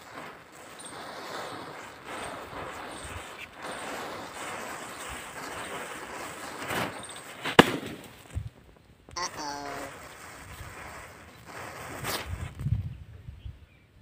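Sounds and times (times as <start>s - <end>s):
firecracker bang: 0.0s - 8.2s
matches flaring and hissing: 0.0s - 8.5s, 9.2s - 12.8s.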